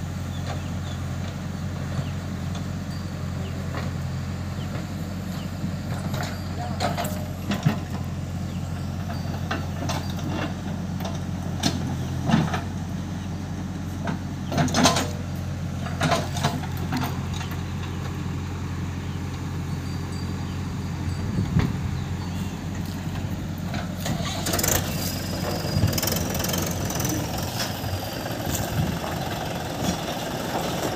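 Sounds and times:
diesel engines droning: 0:00.0 - 0:30.9
metallic clanks and knocks: 0:05.9 - 0:08.1, 0:15.8 - 0:18.0.

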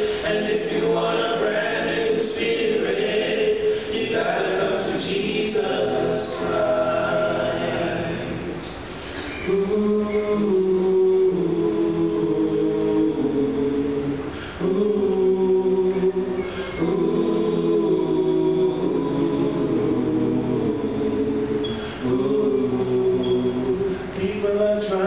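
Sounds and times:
male vocal group singing a cappella: 0:00.0 - 0:25.0.

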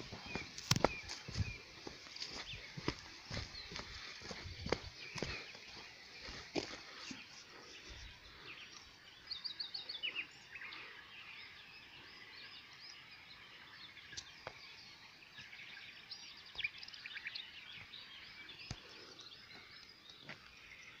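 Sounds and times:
faint outdoor hush: 0:00.0 - 0:13.7
songbirds chirping and singing: 0:00.0 - 0:21.0.

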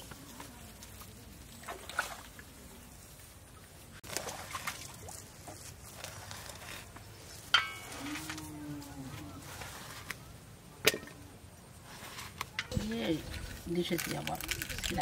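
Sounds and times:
water trickling and sloshing: 0:00.0 - 0:08.0, 0:11.0 - 0:15.0.

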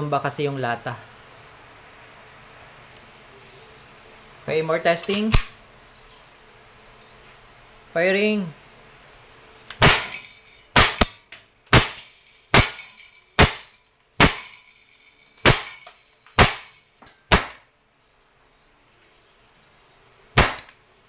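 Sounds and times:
airgun pistol shots: 0:05.1 - 0:05.6, 0:09.7 - 0:14.6, 0:15.4 - 0:17.6, 0:20.4 - 0:20.8.

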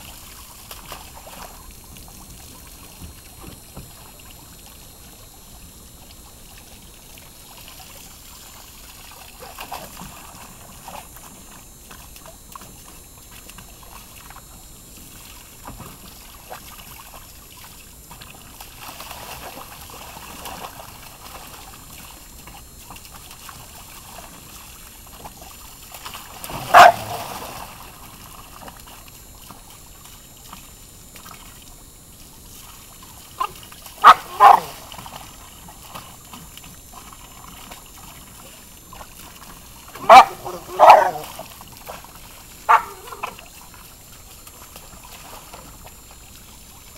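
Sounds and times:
hose water splashing into pool: 0:00.0 - 0:46.9
dog barking: 0:26.6 - 0:27.2, 0:33.4 - 0:34.8, 0:40.0 - 0:41.4, 0:42.7 - 0:43.4.

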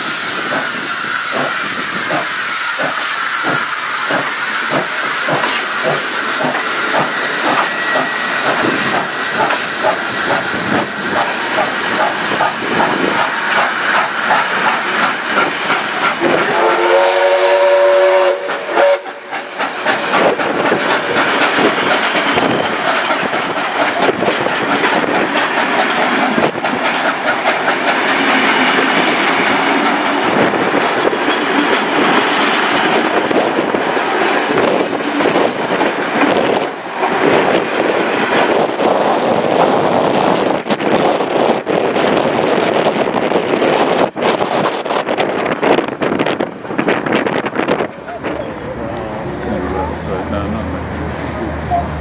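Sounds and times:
steam locomotive whistle: 0:00.0 - 0:12.4, 0:16.2 - 0:20.3
train carriages rolling past: 0:00.0 - 0:52.0
wheels clicking over rail joints: 0:19.3 - 0:38.8.

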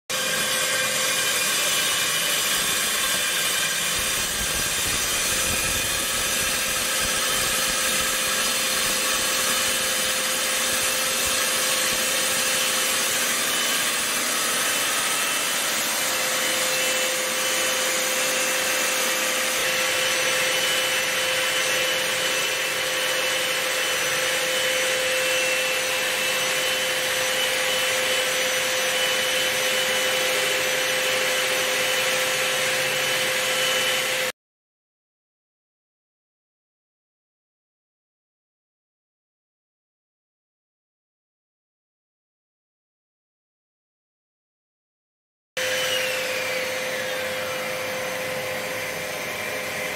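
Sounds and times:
core drill grinding into concrete: 0:00.1 - 0:34.4, 0:45.6 - 0:49.9.

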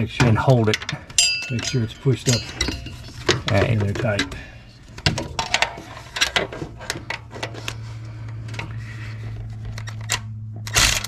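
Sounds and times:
low hum: 0:00.0 - 0:11.0
hand tools clicking on metal: 0:00.2 - 0:04.4.

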